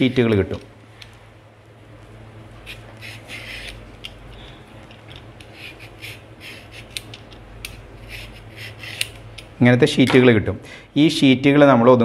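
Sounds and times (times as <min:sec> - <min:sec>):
vegetable peeler scraping carrot: 0:02.6 - 0:03.9, 0:05.4 - 0:07.1, 0:08.0 - 0:09.2.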